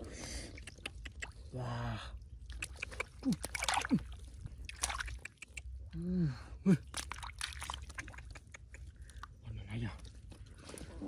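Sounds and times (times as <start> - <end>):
shallow water splashing: 2.2 - 5.4, 6.8 - 9.4.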